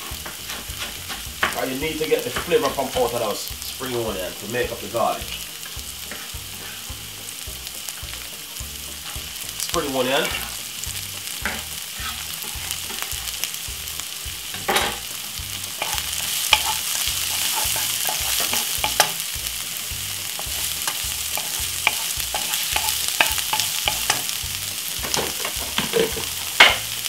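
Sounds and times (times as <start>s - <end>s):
wooden spoon scraping pan: 0.0s - 4.1s, 5.6s - 7.0s, 8.9s - 10.6s, 11.4s - 13.5s, 15.7s - 19.2s, 20.3s - 24.3s
onion sizzling in oil: 0.0s - 27.0s.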